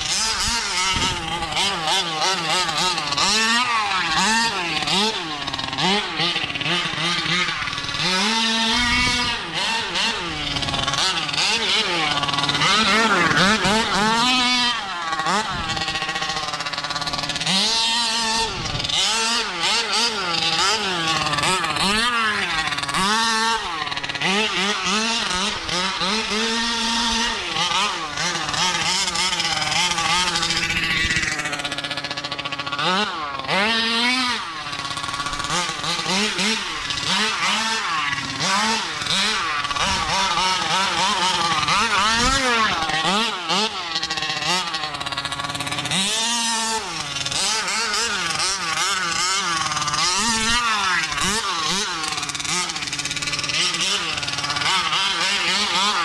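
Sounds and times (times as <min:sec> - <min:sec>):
two-stroke engine revving: 0:00.0 - 0:56.0.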